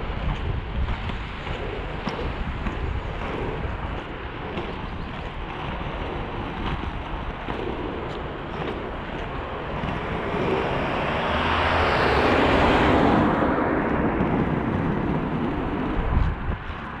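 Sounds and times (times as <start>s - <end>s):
skate wheels rolling on asphalt: 0.0s - 17.0s
vehicle passing: 8.1s - 17.0s.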